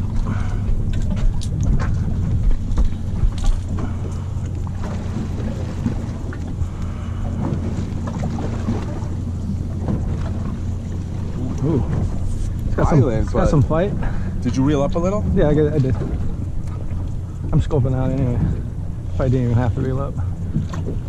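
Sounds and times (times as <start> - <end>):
boat engine idling: 0.0 - 21.0
wind buffeting microphone: 0.0 - 21.0.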